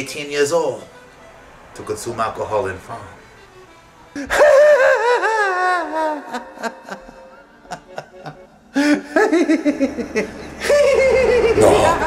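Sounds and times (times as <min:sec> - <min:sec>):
man laughing: 0:04.1 - 0:12.0.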